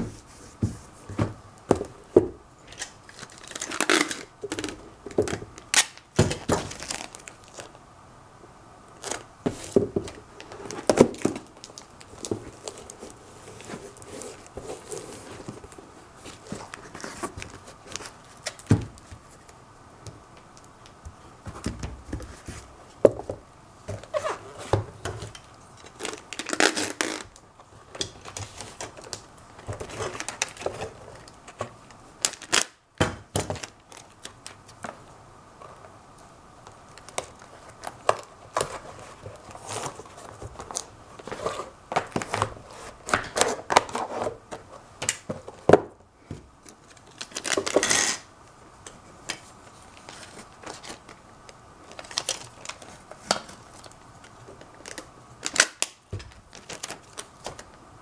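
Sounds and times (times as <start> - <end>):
packing tape clicks and rubbing: 2.7 - 7.8, 9.0 - 9.8, 10.4 - 19.6, 24.0 - 32.8, 33.4 - 35.0, 36.6 - 45.7, 46.6 - 48.3, 49.2 - 57.8.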